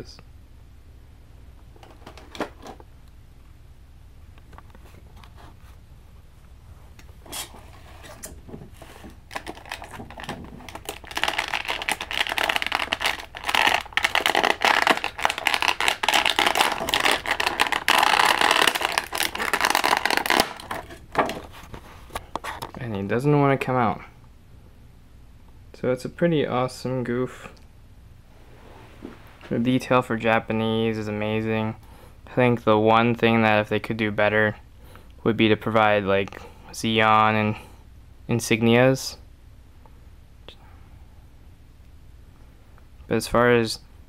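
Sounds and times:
plastic packaging crinkling: 7.4 - 22.8.

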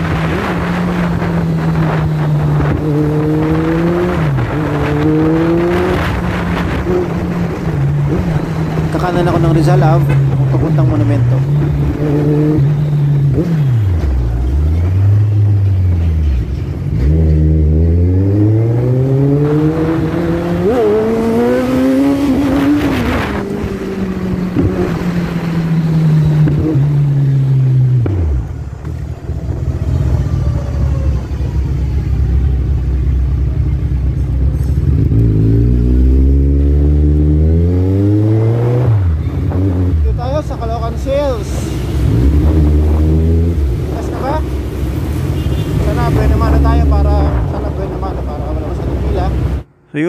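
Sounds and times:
motorcycle engine accelerating: 0.0 - 49.7.

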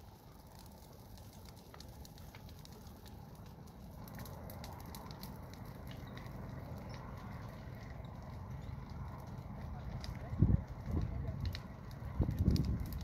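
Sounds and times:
fire crackling and popping: 0.0 - 13.0
low wind rumble: 0.0 - 13.0.

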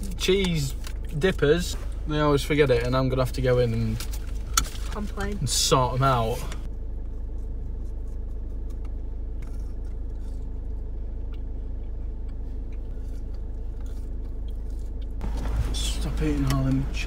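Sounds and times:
car engine idling: 0.0 - 17.0
rustling: 14.7 - 17.0.

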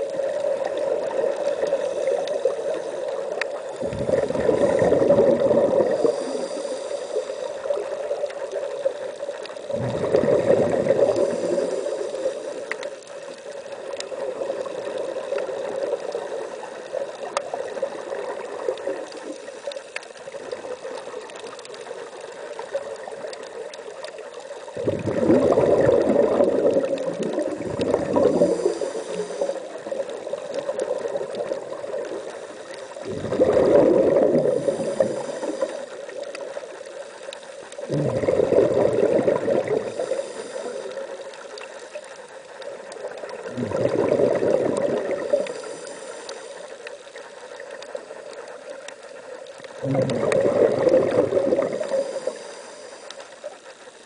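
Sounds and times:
quiet water noise: 0.0 - 54.0
underwater exhaust bubbles: 0.0 - 54.0.

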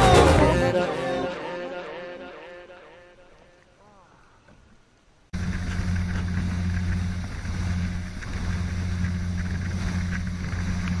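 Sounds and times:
motorboat engine running: 5.4 - 11.0
rushing noise: 5.4 - 11.0.

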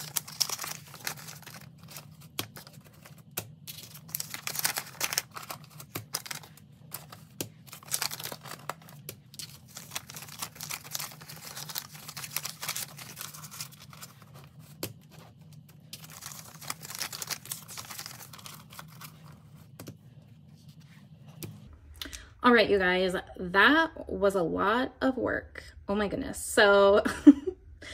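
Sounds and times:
paper banknotes rustling: 0.0 - 21.6.

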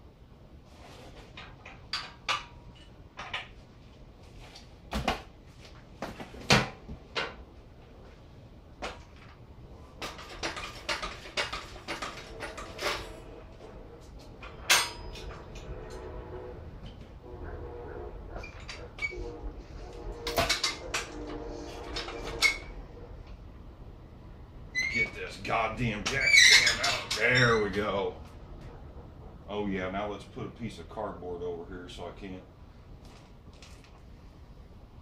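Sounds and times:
metal clanks and knocks: 1.0 - 3.6, 10.0 - 16.2, 18.3 - 22.8, 25.9 - 27.9.

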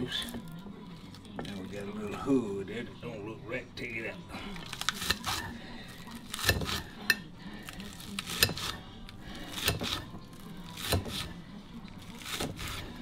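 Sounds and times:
dishes and utensils clinking: 4.6 - 11.4.

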